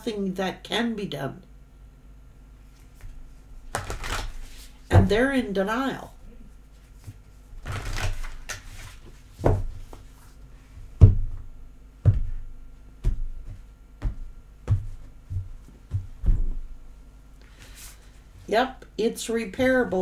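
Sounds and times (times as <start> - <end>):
cards rustling: 3.7 - 4.8
sharp thuds of deck: 11.0 - 11.4.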